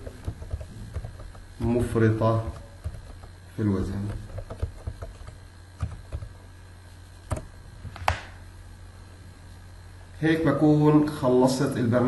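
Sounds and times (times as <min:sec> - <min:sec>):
keyboard keys clicking: 0:00.0 - 0:01.5, 0:02.5 - 0:06.3
low electrical hum: 0:00.0 - 0:12.0.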